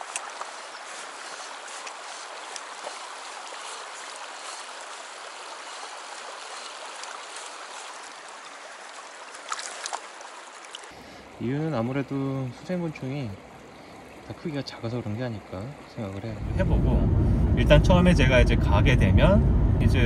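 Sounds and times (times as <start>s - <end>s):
stream rushing over cobbles: 0.0s - 13.5s.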